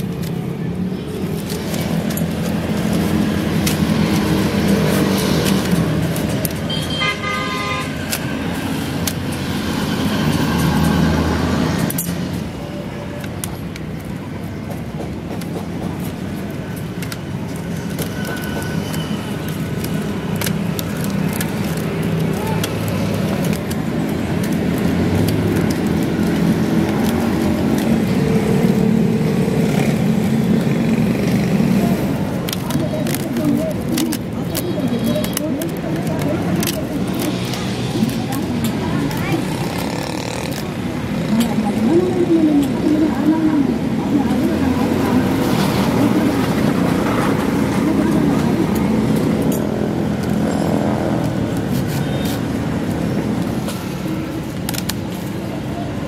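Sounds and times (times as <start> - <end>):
bamboo sticks clicking: 0.0 - 6.8, 7.9 - 12.5, 13.2 - 41.6, 47.9 - 55.8
motor traffic: 0.0 - 56.0
vehicle horn: 6.7 - 8.0.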